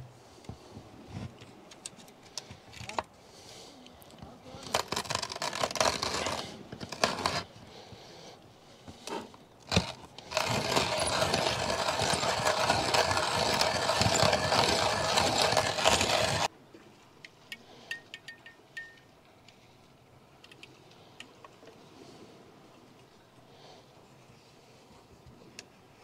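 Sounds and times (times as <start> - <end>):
coffee grinder grinding: 4.6 - 7.5, 9.7 - 16.5.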